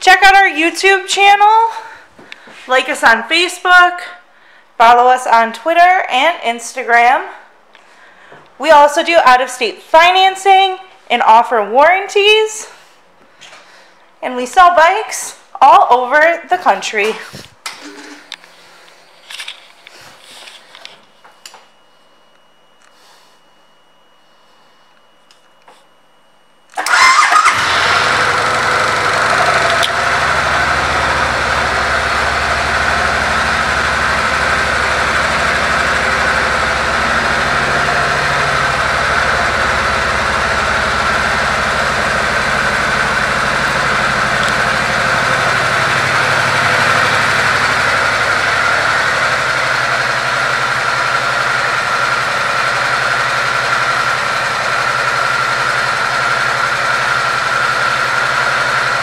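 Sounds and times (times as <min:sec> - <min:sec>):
motorcycle engine starting and idling: 0:26.7 - 0:59.0.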